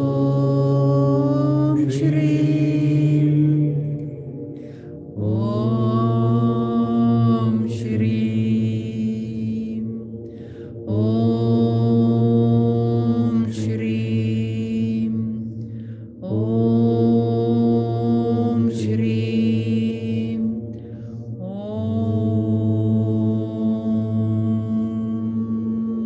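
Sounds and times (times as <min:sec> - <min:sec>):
woman chanting in held tones: 0:00.0 - 0:04.6, 0:05.2 - 0:26.0
woman breathing: 0:04.5 - 0:05.2, 0:10.2 - 0:10.9, 0:15.6 - 0:16.2, 0:20.7 - 0:21.4.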